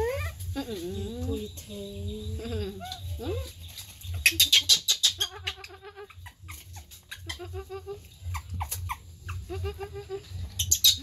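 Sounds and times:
monkeys stuttering calls: 0.0s - 1.3s, 4.2s - 11.0s
monkeys squeaking: 0.0s - 11.0s.

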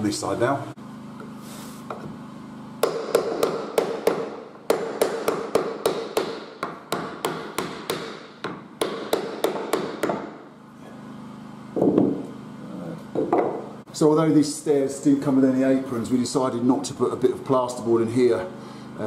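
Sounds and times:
hammer tapping on wood: 2.8s - 10.3s, 13.2s - 13.6s.

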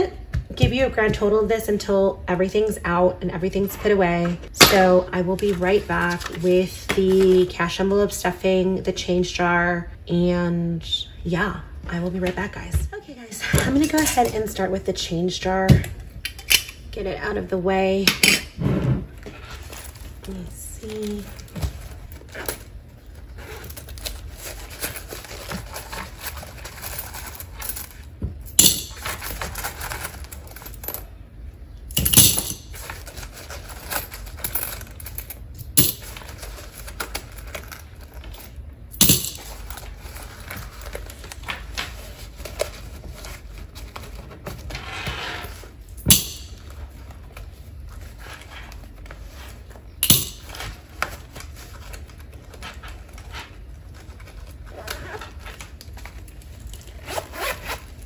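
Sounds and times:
coins rustling: 23.6s - 31.0s, 32.0s - 40.9s.

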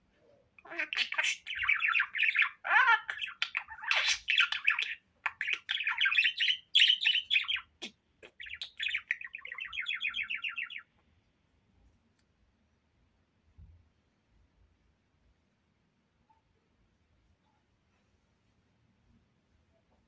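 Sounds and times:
budgerigar chattering and warbling: 0.6s - 10.9s.

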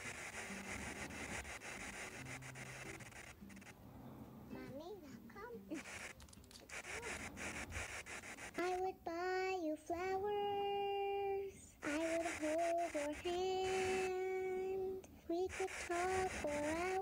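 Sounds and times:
scratchy drawing strokes: 0.0s - 9.5s, 11.8s - 17.0s
child singing held notes: 8.6s - 17.0s.

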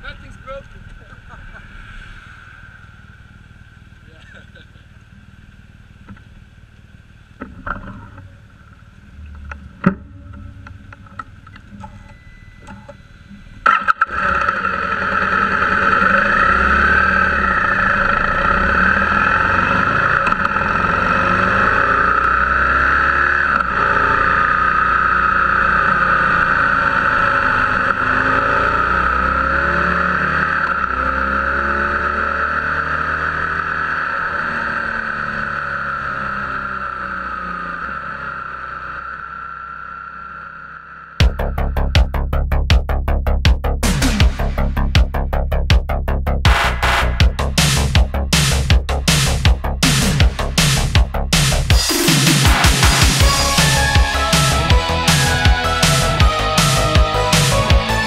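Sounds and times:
motorcycle engine running: 0.0s - 58.0s
wind and road noise: 0.0s - 58.0s.

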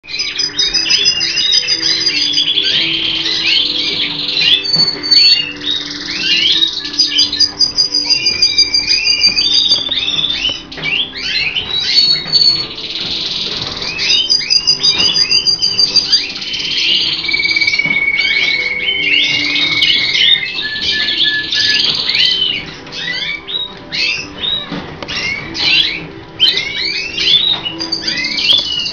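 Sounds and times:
canaries singing: 0.0s - 28.9s
soft music with sustained notes: 0.0s - 28.9s.

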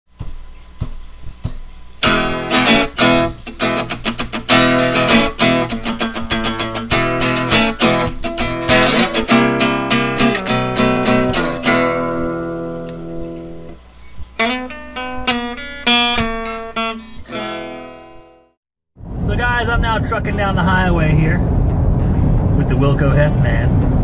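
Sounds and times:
strummed guitar music: 2.0s - 18.6s.

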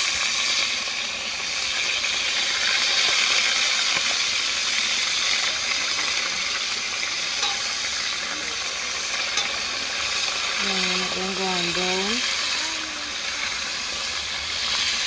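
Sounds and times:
chicken sizzling in oil: 0.0s - 15.0s
fork clinking against pot: 7.4s - 7.8s, 9.4s - 9.7s.

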